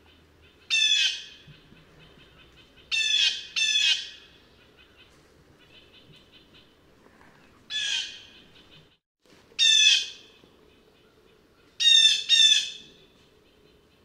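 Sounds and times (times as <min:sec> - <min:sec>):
blue jay calling: 0:00.0 - 0:06.8, 0:07.7 - 0:09.0, 0:09.6 - 0:10.4, 0:11.8 - 0:13.0.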